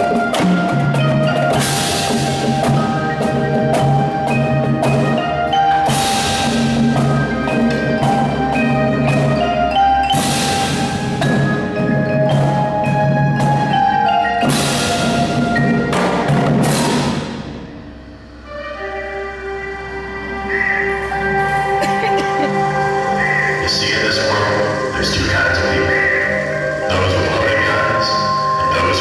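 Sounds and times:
drum strikes: 0.0s - 18.0s
mallet keyboard notes: 0.0s - 29.0s.

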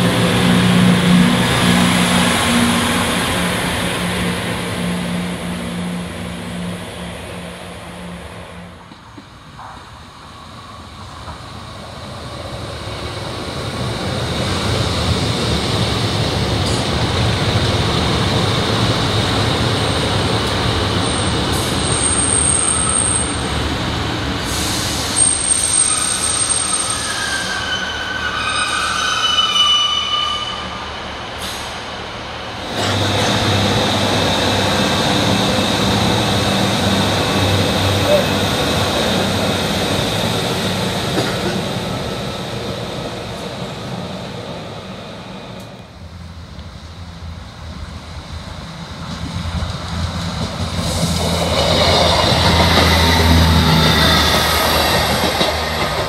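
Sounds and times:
diesel train running past: 0.0s - 56.0s
shrill wheel squeals: 25.1s - 31.0s.

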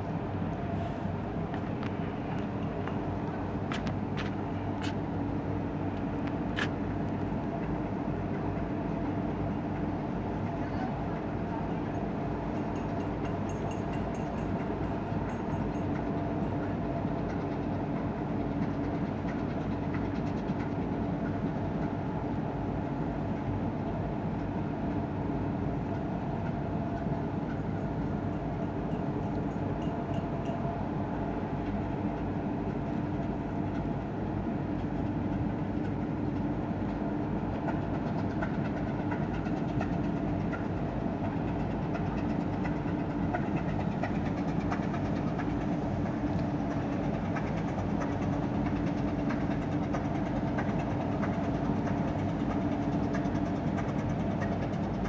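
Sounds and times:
ship diesel engine drone: 0.0s - 55.0s.

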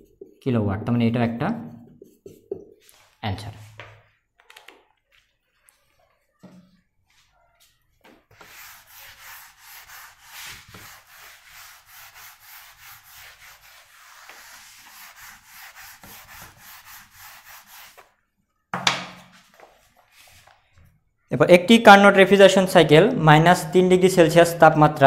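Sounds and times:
eraser rubbing on whiteboard: 8.3s - 18.1s.

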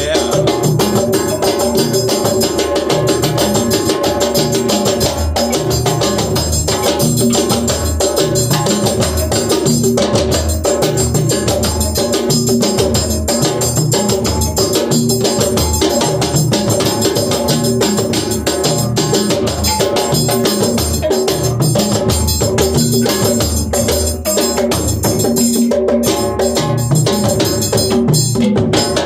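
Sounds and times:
hand drums playing fast rhythm: 0.0s - 29.0s.

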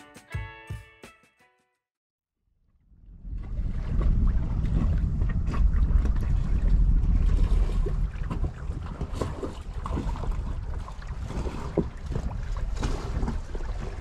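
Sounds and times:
wind buffeting microphone: 2.9s - 14.0s.

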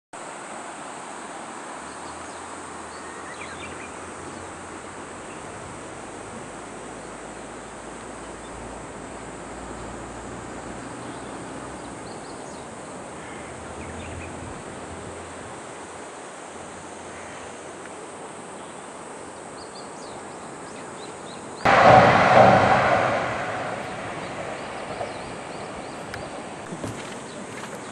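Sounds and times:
outdoor background hiss: 0.2s - 27.9s
railcar crossing steel bridge: 21.7s - 27.9s.

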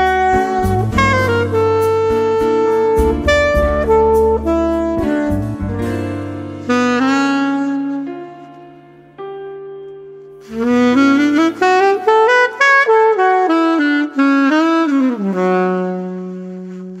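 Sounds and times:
bass line: 0.0s - 8.1s
instrumental melody with held notes: 0.0s - 17.0s.

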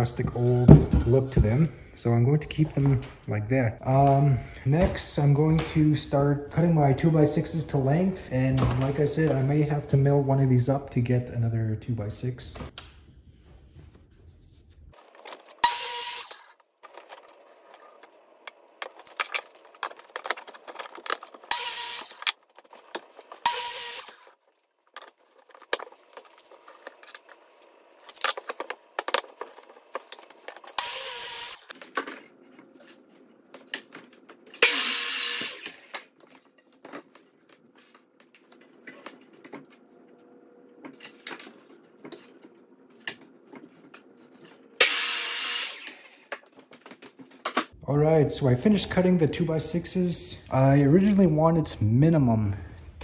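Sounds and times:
miter saw cutting boards: 15.0s - 24.4s, 28.1s - 31.9s, 34.6s - 36.1s, 44.8s - 46.4s
knocks and scraping of boards: 15.0s - 30.8s.

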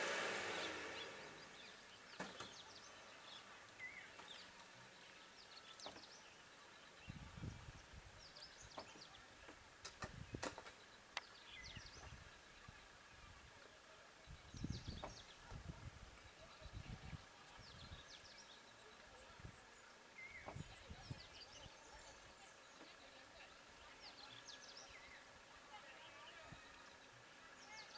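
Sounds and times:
high steady buzz: 0.0s - 1.9s.

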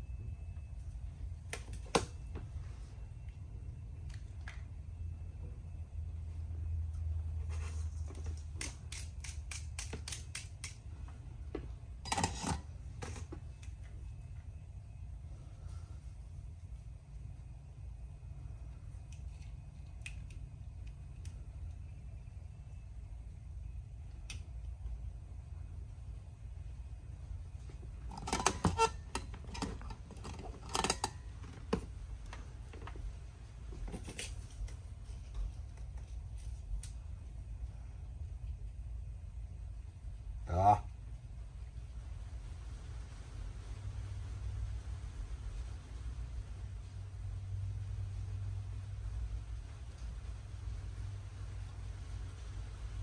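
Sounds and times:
low hum: 0.0s - 53.0s
light clicks of small tools: 8.3s - 11.2s, 18.9s - 21.9s
soldering iron clattering in stand: 12.1s - 13.4s, 28.1s - 31.9s
sharp clicks and rattles: 28.1s - 33.0s.

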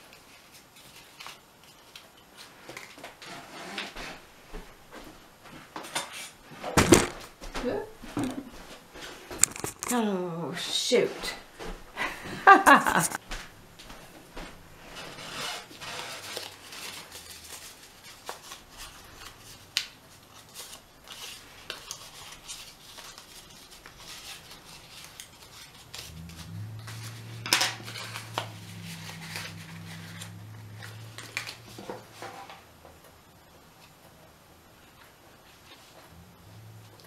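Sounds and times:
paper rustling and crinkling: 0.0s - 4.2s, 9.0s - 10.0s, 14.8s - 32.7s, 34.8s - 36.1s
low steady hum: 16.9s - 37.0s.

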